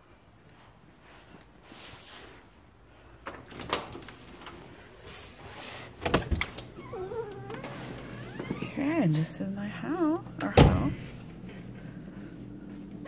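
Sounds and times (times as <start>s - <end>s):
latch and handle clicks: 6.0s - 8.1s.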